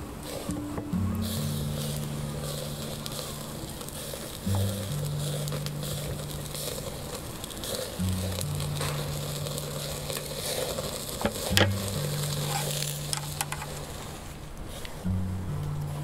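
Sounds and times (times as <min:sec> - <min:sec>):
low bass background music: 0:00.0 - 0:13.9, 0:15.0 - 0:16.0
meat sizzling over charcoal: 0:00.0 - 0:15.1
sharp crackles: 0:00.0 - 0:16.0.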